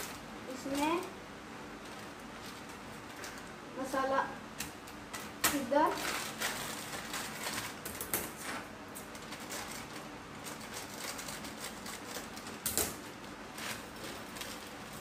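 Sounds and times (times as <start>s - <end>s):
plastic sachets crinkling: 4.8s - 8.4s, 9.0s - 15.0s.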